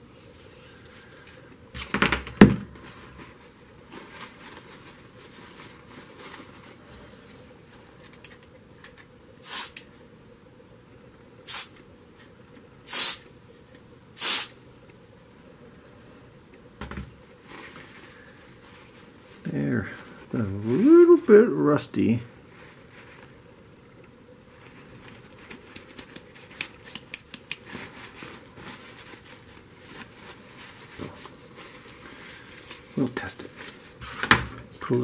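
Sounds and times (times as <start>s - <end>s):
aerosol spray hisses: 9.4s - 9.8s, 11.5s - 11.7s, 12.9s - 13.3s, 14.2s - 14.6s.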